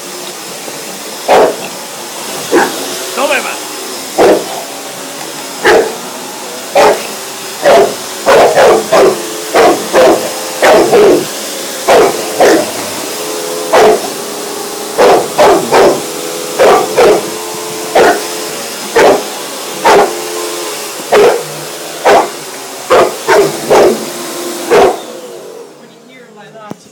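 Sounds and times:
vacuum cleaner running: 0.0 - 26.9
large dog barking: 1.2 - 1.7, 2.4 - 2.9, 4.1 - 4.7, 5.6 - 6.0, 6.6 - 12.9, 13.7 - 14.2, 14.9 - 18.3, 18.9 - 20.2, 21.1 - 24.1, 24.7 - 25.1.

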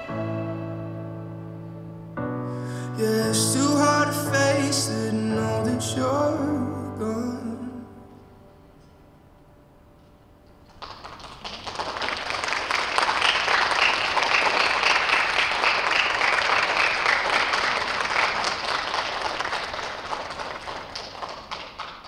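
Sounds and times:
audience applauding: 10.7 - 22.0.

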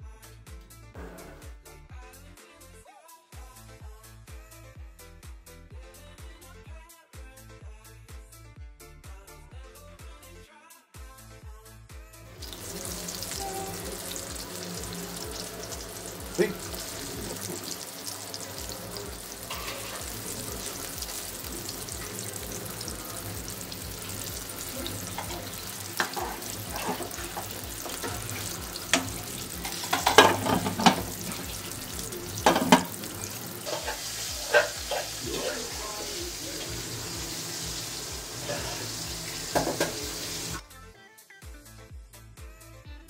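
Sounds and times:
oil crackling and popping: 12.4 - 35.4, 39.2 - 40.6
chicken deep-frying in oil: 12.4 - 40.6.

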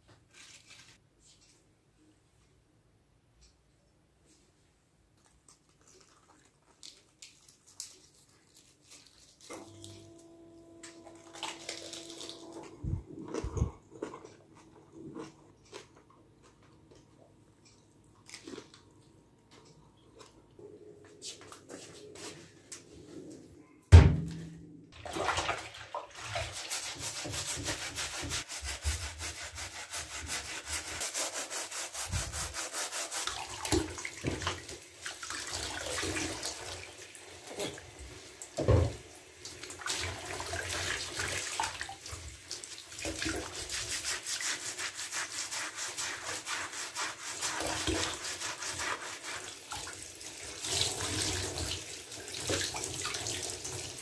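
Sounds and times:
tap water running and splashing: 11.1 - 12.6, 25.0 - 54.0
loud thump: 23.9 - 24.6
hands rubbing wet slipper: 26.1 - 34.0, 42.7 - 50.0.

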